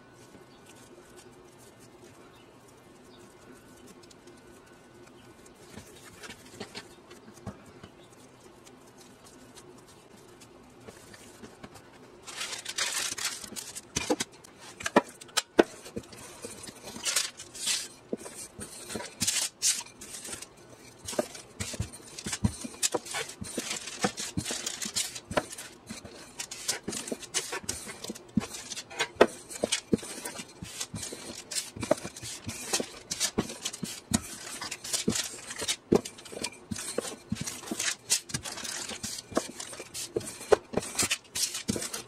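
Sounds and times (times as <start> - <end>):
faint dough handling: 0.0 - 42.0
rolling pin rolling dough: 0.1 - 42.0.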